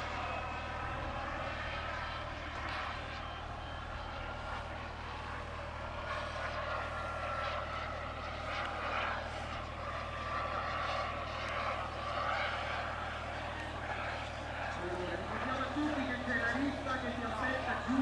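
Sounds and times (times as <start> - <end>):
model jet turbine whine: 0.0 - 18.0.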